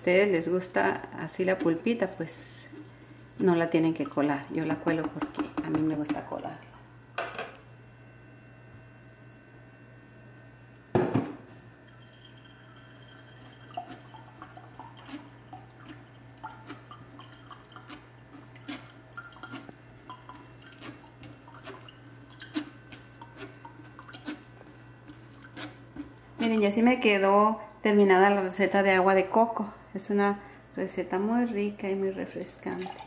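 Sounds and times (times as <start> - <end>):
liquid dripping into pitcher: 11.6 - 26.7, 32.2 - 33.0.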